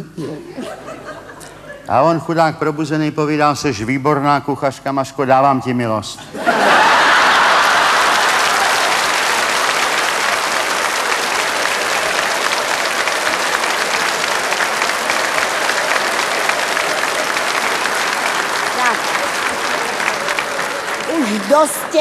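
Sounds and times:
audience laughter: 0.6s - 1.9s, 6.4s - 8.7s
audience applauding: 6.4s - 22.0s.

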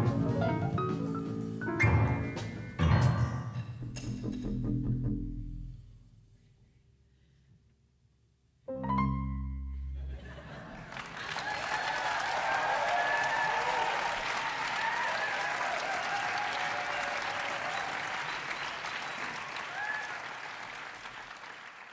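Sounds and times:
audience applauding: 10.5s - 21.9s.

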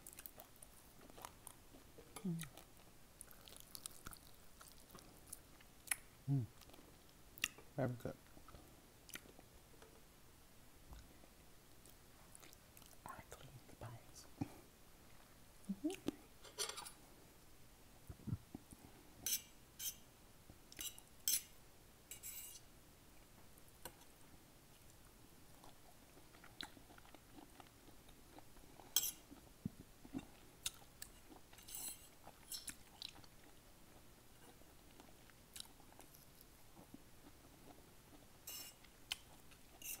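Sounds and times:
chewing mouth sounds: 0.0s - 6.0s.

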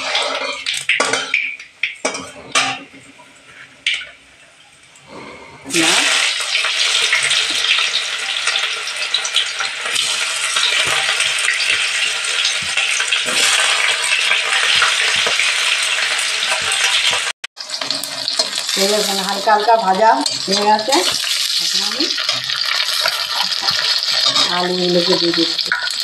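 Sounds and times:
spatula scraping a pan: 0.0s - 1.4s, 17.7s - 26.0s
onions sizzling in hot oil: 0.0s - 2.8s, 5.6s - 26.0s.

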